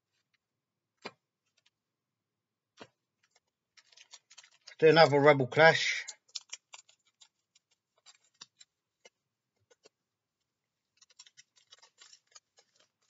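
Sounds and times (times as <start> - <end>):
foil card pack crinkling: 3.8 - 5.2, 6.2 - 8.8, 11.0 - 13.0.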